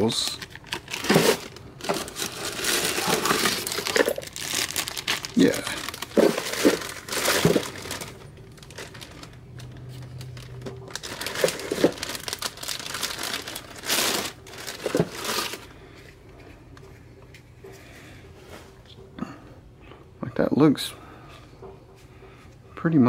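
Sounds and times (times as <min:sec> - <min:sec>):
plastic bags crinkling: 0:00.0 - 0:15.8.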